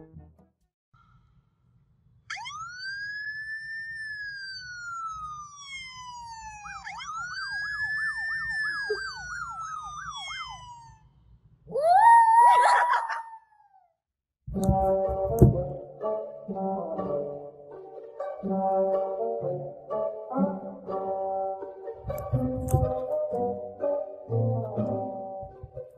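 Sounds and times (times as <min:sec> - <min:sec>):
electronic police siren: 0:02.3 - 0:11.2.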